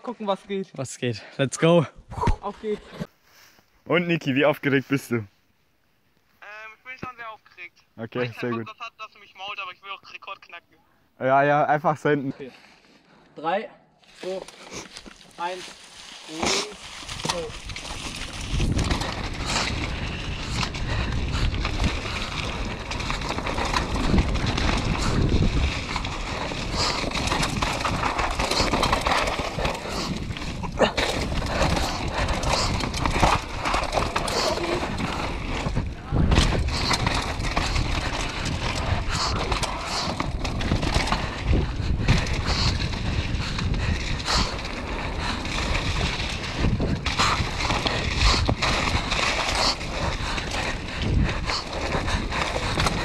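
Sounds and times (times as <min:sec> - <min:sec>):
tyres rolling over wet leaves: 0:14.0 - 0:41.5
bike rattling over bumps: 0:14.2 - 0:53.0
wind buffeting microphone: 0:17.1 - 0:53.0.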